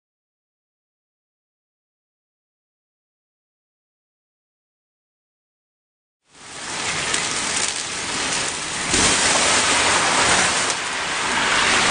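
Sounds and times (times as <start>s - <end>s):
oil fire flames roaring: 6.3s - 11.9s.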